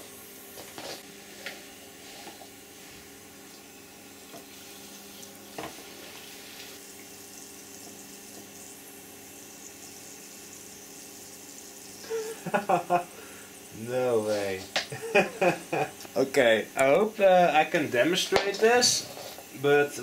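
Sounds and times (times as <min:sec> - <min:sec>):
compressed air hissing from leaks: 0:08.9 - 0:20.0.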